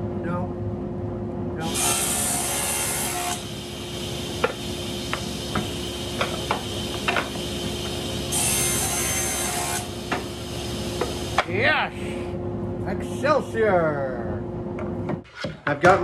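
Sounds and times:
table saw cutting wood: 0:01.6 - 0:11.4.

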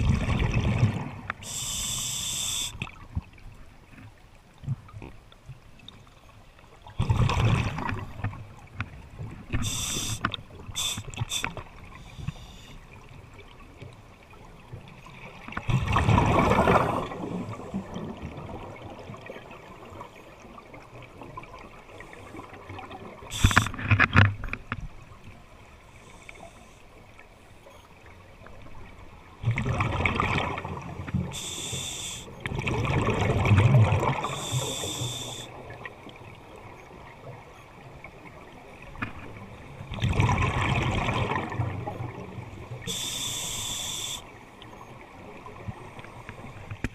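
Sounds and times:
regulator hissing: 0:01.4 - 0:02.8, 0:09.6 - 0:10.2, 0:23.3 - 0:23.7, 0:31.4 - 0:32.3, 0:34.3 - 0:35.5, 0:42.9 - 0:44.2.

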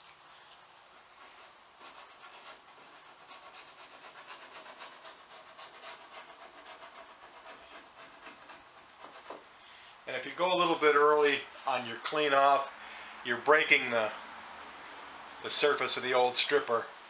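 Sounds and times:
paint brush scratchy strokes: 0:01.1 - 0:11.7.

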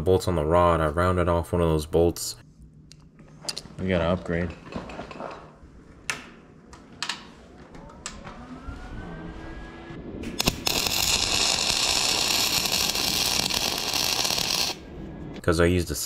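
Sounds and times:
welder arc crackling and hissing: 0:10.2 - 0:14.9.

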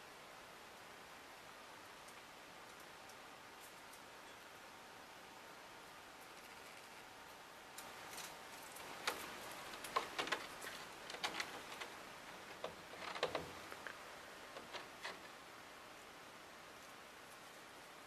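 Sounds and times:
claws scratching at window: 0:07.8 - 0:15.4.

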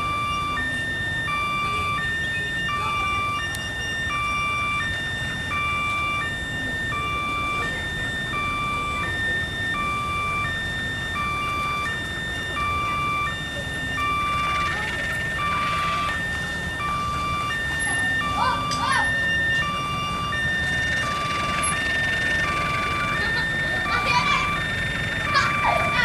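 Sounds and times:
two-tone electronic alarm: 0:00.0 - 0:26.0.

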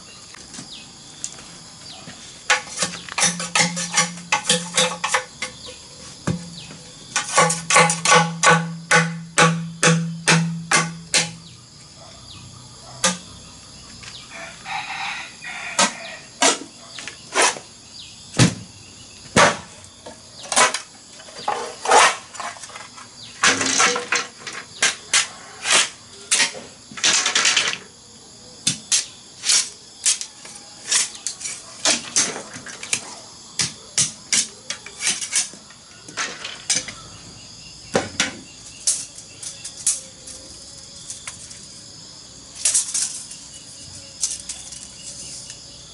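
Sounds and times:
machete chopping bamboo: 0:07.2 - 0:11.5, 0:19.3 - 0:19.7.

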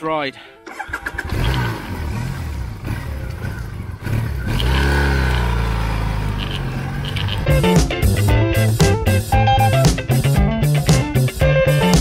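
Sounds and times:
motorcycle engine accelerating: 0:00.7 - 0:09.4.

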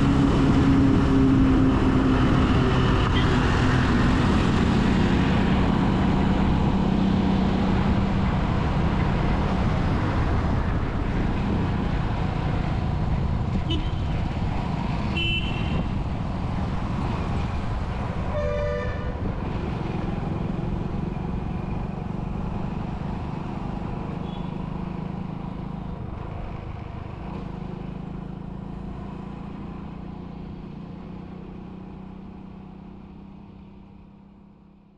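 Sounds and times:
traffic rumble: 0:00.0 - 0:34.9
vehicle horn honking: 0:13.6 - 0:14.1, 0:15.1 - 0:15.8, 0:18.3 - 0:19.2.

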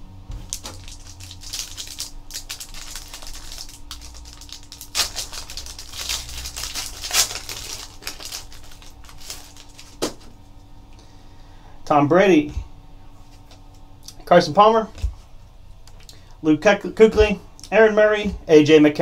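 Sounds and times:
foil card pack crinkling: 0:00.4 - 0:10.4.

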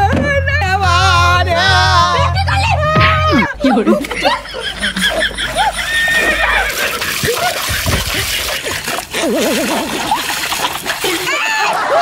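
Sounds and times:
water splashing into a basin: 0:04.0 - 0:12.0.

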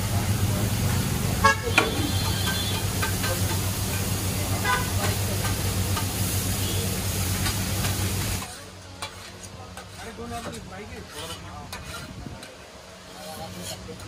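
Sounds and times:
patties sizzling on a griddle: 0:00.0 - 0:12.1.

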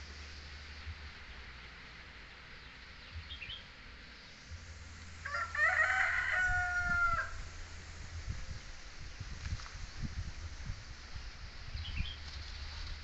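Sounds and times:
rooster crowing: 0:05.2 - 0:07.5.

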